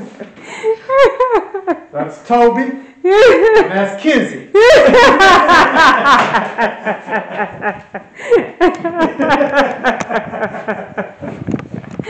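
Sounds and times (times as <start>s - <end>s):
people laughing: 0.0s - 1.8s, 3.1s - 3.8s, 4.6s - 11.4s.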